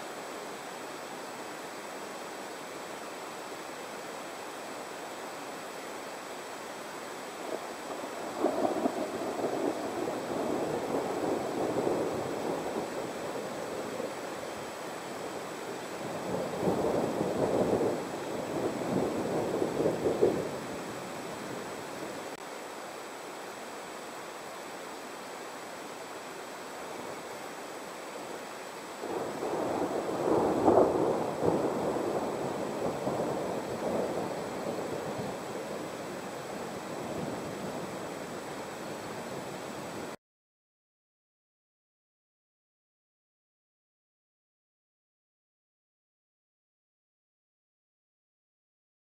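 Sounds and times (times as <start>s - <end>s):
rolling thunder: 7.9s - 14.2s, 16.0s - 20.6s, 29.0s - 36.0s
thunder rolling: 29.0s - 36.0s.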